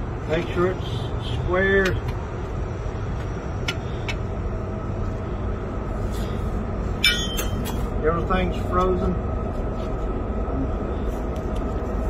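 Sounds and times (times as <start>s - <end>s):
steady low rumble: 0.0s - 12.0s
ringing metal clink: 7.0s - 7.8s.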